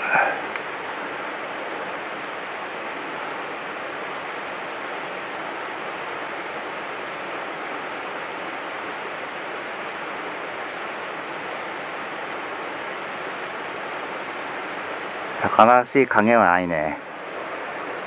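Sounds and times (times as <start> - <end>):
stream water rushing: 0.0 - 18.0.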